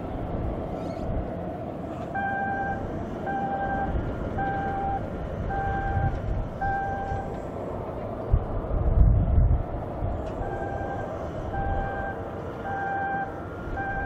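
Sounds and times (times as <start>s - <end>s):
jet airliner rumble: 0.0s - 14.0s
vehicle reversing alarm beeping: 2.1s - 7.4s, 10.4s - 14.0s.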